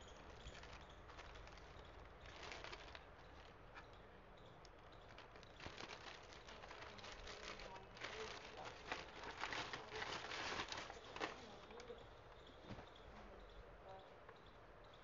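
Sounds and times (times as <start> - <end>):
plastic bag crinkling: 0.0 - 3.6, 5.1 - 11.9.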